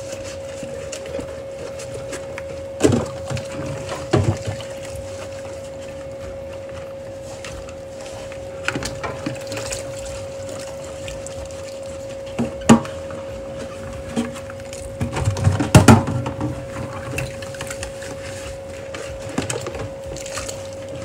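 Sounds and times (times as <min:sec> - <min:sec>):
steady hum: 0:00.0 - 0:21.0
plastic containers clattering: 0:14.1 - 0:17.9.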